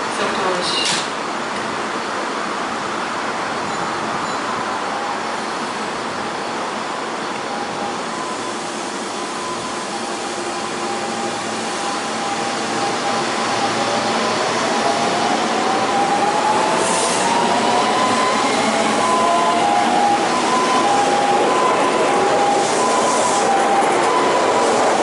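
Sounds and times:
electric train pulling out: 6.6 - 25.0.

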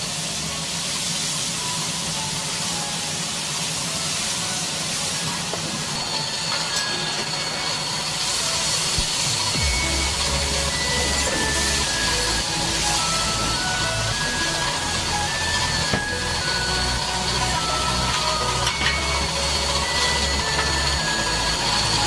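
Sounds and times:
batter hissing on griddle: 0.0 - 22.0.

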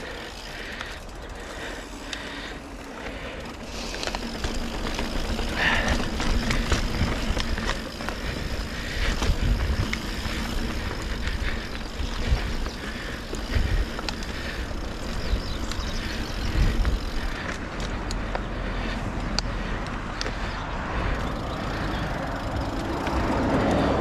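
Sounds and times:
bike clicks and rattles: 0.0 - 24.0
bike tyres on dirt trail: 0.0 - 24.0
wind buffeting microphone: 4.0 - 24.0.

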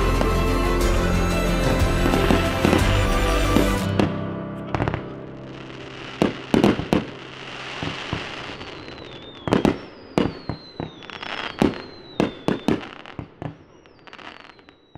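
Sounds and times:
fireworks bangs: 1.7 - 14.9
hissing crackle: 4.8 - 14.9
falling whistles: 8.2 - 14.9.

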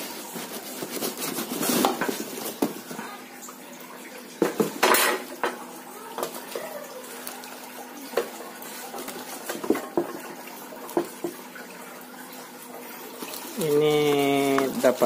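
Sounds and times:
plastic wrapping crinkling: 0.0 - 3.0, 13.0 - 15.0.

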